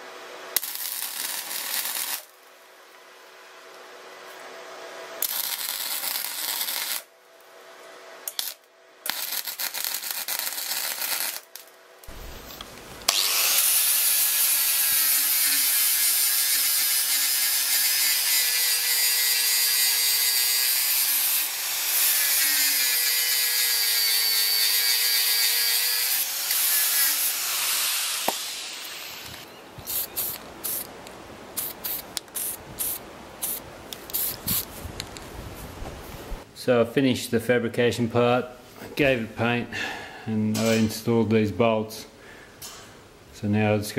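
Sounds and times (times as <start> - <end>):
welding arc crackling: 0.6 - 2.3, 5.2 - 7.1, 8.3 - 34.8
angle grinder whining on steel: 12.6 - 29.5
spray paint can hissing: 29.2 - 30.9, 31.6 - 34.7.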